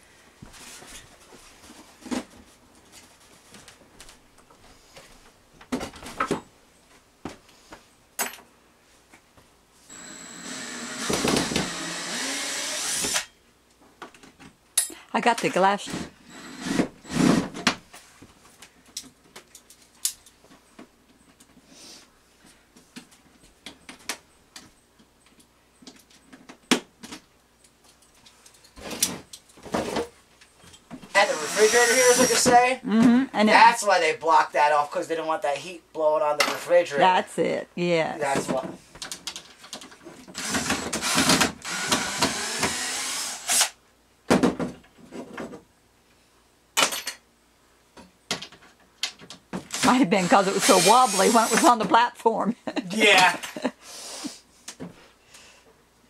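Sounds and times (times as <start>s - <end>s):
wooden boards knocking and thudding: 44.3s - 45.6s.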